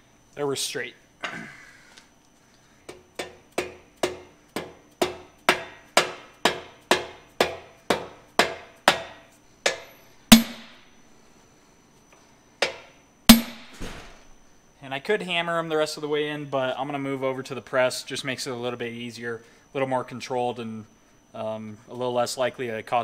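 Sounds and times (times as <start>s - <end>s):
mallet tapping metal: 9.7s - 10.8s, 12.6s - 13.7s
heavy hammer blows: 10.3s - 10.8s.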